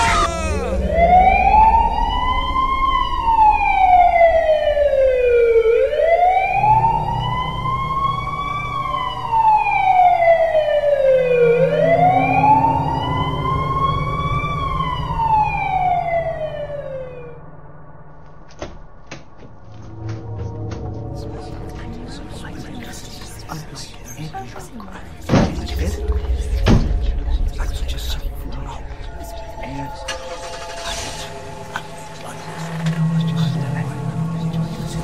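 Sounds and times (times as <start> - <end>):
emergency siren wailing: 0.0 - 17.6, 28.7 - 34.2.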